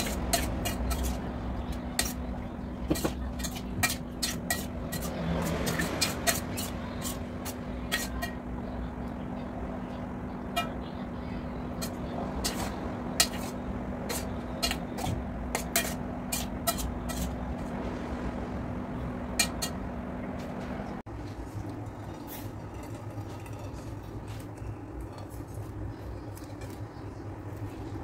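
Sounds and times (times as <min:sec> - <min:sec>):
fork scraping metal bowl: 0:00.0 - 0:08.4, 0:11.7 - 0:17.5, 0:19.4 - 0:19.8
steady low hum: 0:00.0 - 0:28.0.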